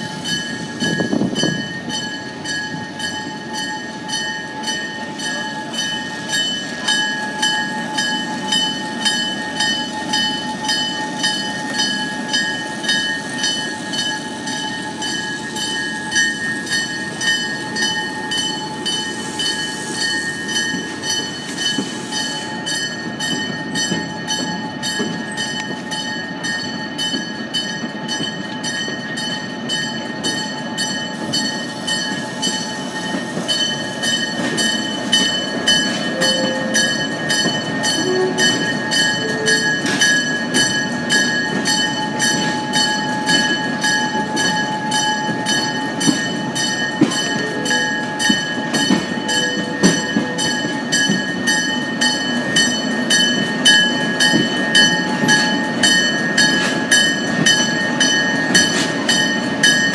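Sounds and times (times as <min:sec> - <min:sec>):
train running rumble: 0:00.0 - 0:59.9
train wheels clicking over rail joints: 0:00.1 - 0:59.9.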